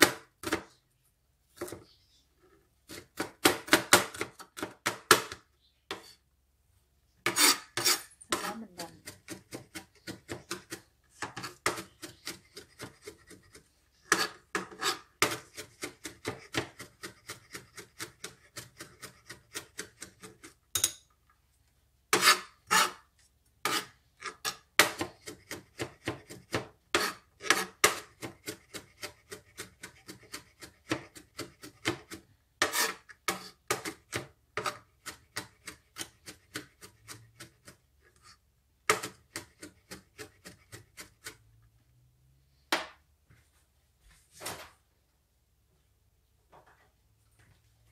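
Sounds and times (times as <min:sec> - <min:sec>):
knife chopping on plastic board: 0:00.0 - 0:00.7, 0:02.9 - 0:06.1, 0:07.2 - 0:20.6, 0:23.6 - 0:37.8, 0:38.8 - 0:41.4
blade scraping cutting board: 0:02.8 - 0:06.2, 0:07.2 - 0:20.6, 0:22.1 - 0:41.5.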